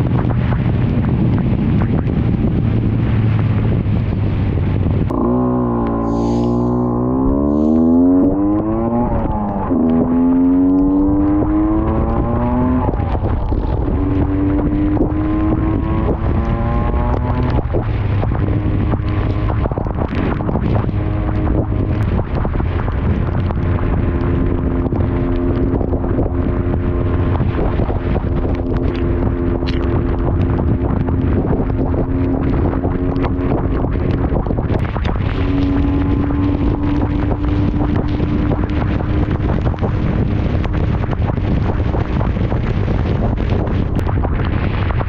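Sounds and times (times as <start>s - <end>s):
motorcycle engine accelerating: 0.0s - 45.0s
rain on a wet road: 0.0s - 45.0s
wind buffeting microphone: 0.0s - 45.0s
wind hiss: 5.9s - 7.9s.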